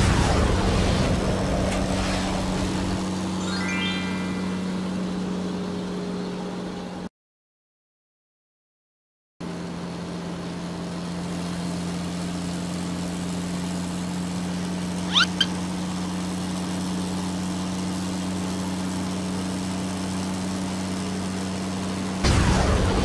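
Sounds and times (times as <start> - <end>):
truck engine running: 0.3 - 7.1
short high rising squeaks: 3.4 - 5.3, 15.0 - 15.6.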